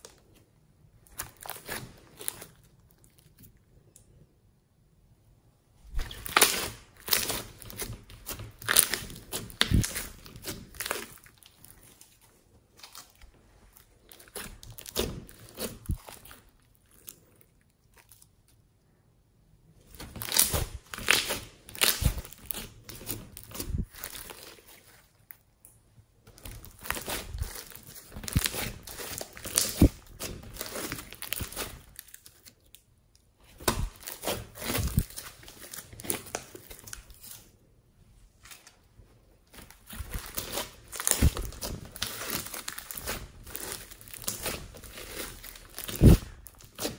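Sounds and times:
slime squeezed by hand crackling: 0:05.9 - 0:12.2, 0:26.4 - 0:32.5, 0:39.7 - 0:46.9.

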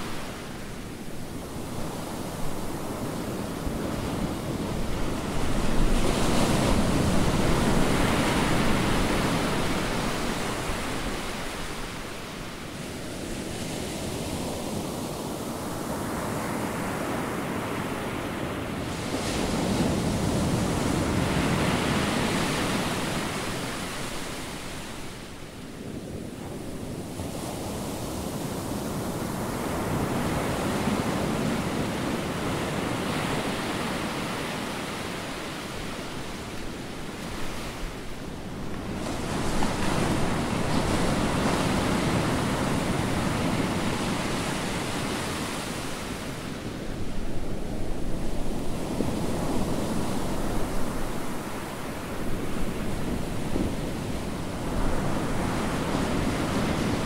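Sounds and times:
ocean waves breaking: 0:26.6 - 0:57.0.

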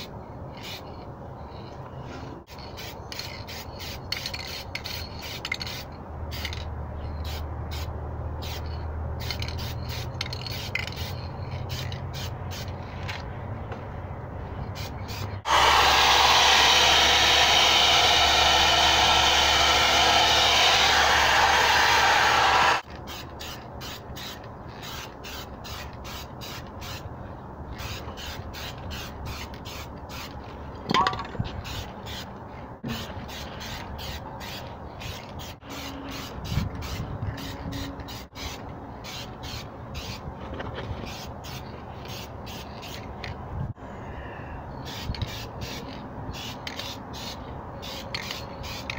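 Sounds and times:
spray paint can hissing: 0:00.0 - 0:01.0, 0:02.5 - 0:13.2, 0:14.8 - 0:27.1, 0:27.7 - 0:30.5, 0:31.5 - 0:40.2, 0:40.9 - 0:43.4, 0:44.8 - 0:48.9
spray can mixing ball rattling: 0:02.5 - 0:07.8, 0:08.4 - 0:13.2.

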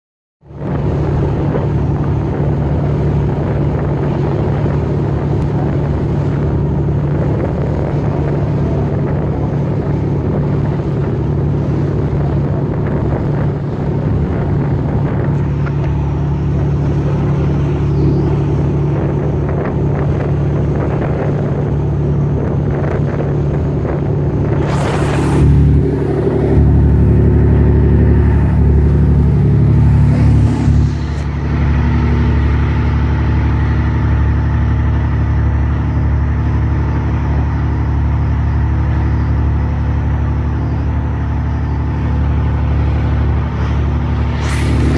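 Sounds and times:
boat engine running: 0:00.4 - 0:44.9
wind on the microphone: 0:00.4 - 0:44.9
rushing water: 0:00.5 - 0:36.4
short sharp burst of noise: 0:44.3 - 0:44.9.

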